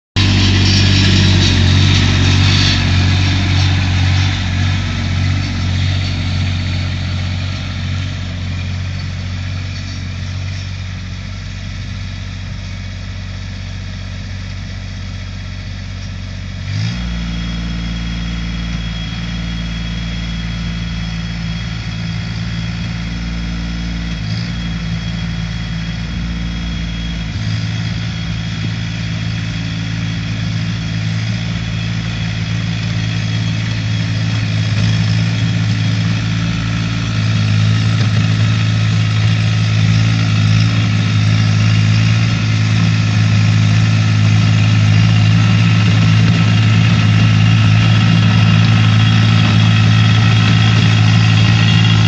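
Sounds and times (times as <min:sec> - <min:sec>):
tractor diesel engine running: 0:00.0 - 0:52.0.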